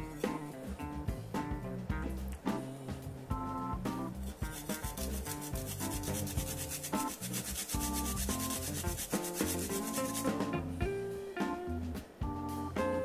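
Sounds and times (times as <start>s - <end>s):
faint guitar music: 0.0s - 7.1s, 7.7s - 13.0s
garlic rasping on grater: 4.2s - 10.4s.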